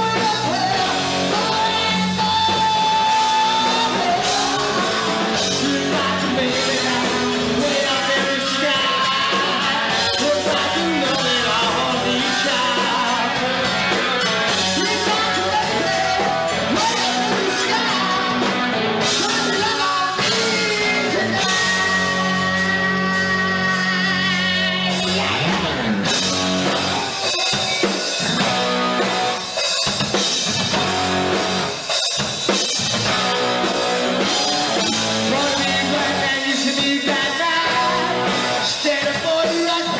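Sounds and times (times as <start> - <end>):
person singing: 0.0 - 25.8, 34.2 - 39.9
bass guitar: 0.0 - 39.9
drum kit: 0.0 - 39.9
electric guitars: 0.0 - 39.9.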